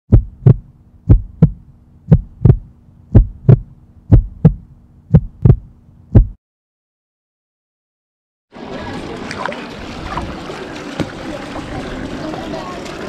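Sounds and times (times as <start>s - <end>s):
faint low hum: 0.1s - 6.4s
heartbeat thumps: 0.1s - 6.4s.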